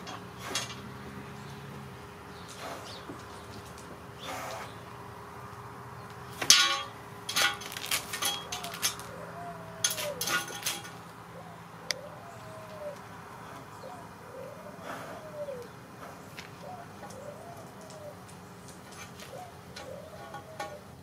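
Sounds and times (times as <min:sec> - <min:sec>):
metal pipe knocking and clinking: 0:06.4 - 0:08.8
sharp metal clank: 0:06.4 - 0:09.0.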